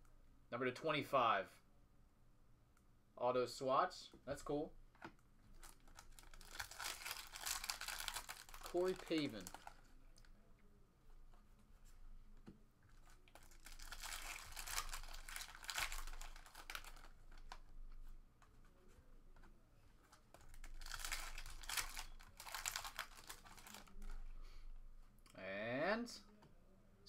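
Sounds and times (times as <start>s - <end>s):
foil wrappers crinkling and tearing: 5.6s - 9.8s, 13.1s - 17.6s, 20.4s - 24.2s.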